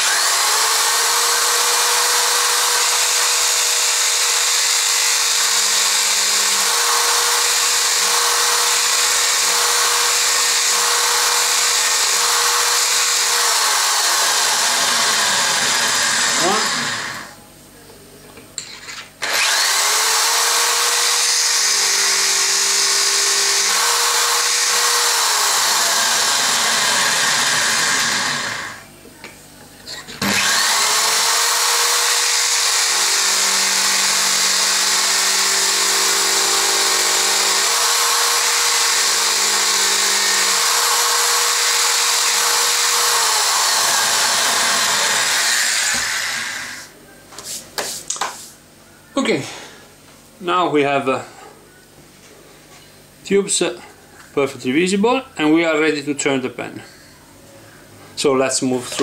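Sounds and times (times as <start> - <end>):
cutter scraping wood and brass: 0.0 - 17.3, 18.8 - 28.8, 30.2 - 46.9
electric drill motor spinning: 0.0 - 17.3, 19.2 - 28.8, 30.1 - 46.9.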